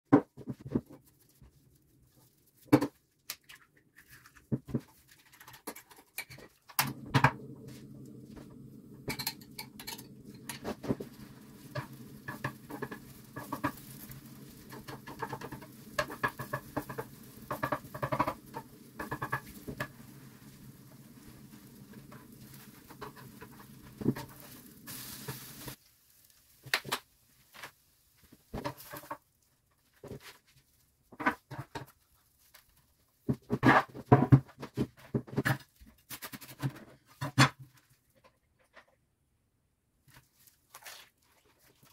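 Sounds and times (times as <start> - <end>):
food frying in a pan: 4.2 - 29.2
bowl and utensils clinking: 9.0 - 11.0.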